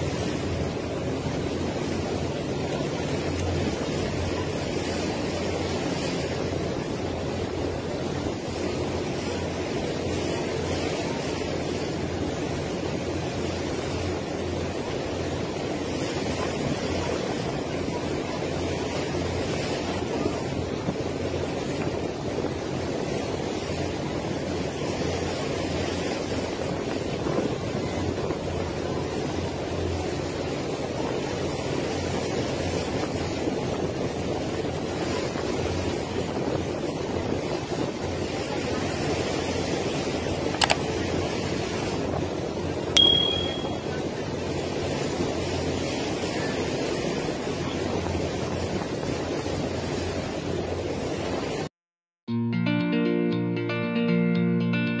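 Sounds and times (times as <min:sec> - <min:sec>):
boat engine drone: 0:00.0 - 0:51.7
wind and water rushing: 0:00.0 - 0:51.7.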